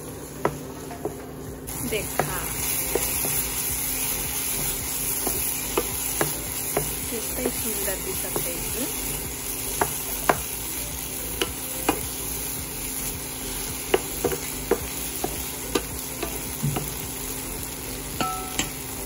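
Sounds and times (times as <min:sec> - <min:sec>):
vegetables sizzling in frying pan: 0:00.0 - 0:19.0
spatula tapping against pan: 0:05.2 - 0:07.7, 0:13.9 - 0:17.0, 0:18.2 - 0:18.8.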